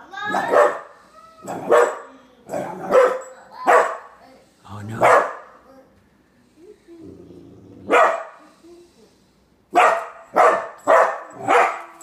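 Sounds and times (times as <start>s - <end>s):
puppy barking: 0.3s - 4.2s, 5.0s - 5.6s, 7.9s - 8.4s, 9.7s - 12.0s.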